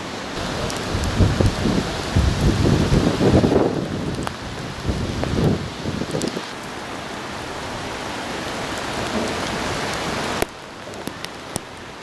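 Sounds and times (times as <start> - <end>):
heavy rain hissing: 0.0 - 12.0.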